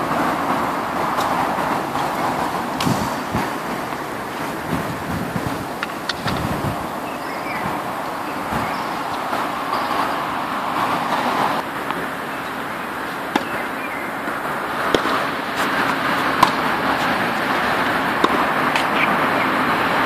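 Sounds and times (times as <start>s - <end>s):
tennis ball struck by racquet: 0.0s - 10.3s, 11.0s - 19.6s
steady background hiss: 0.0s - 20.0s
ball bouncing on hard court: 13.2s - 13.8s, 14.8s - 19.4s.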